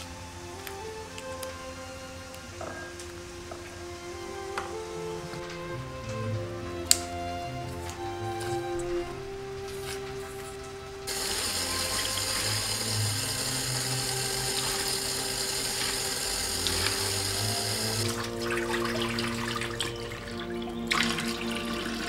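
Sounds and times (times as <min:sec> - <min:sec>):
background music: 0:00.0 - 0:22.0
water running from a tap: 0:11.1 - 0:19.9.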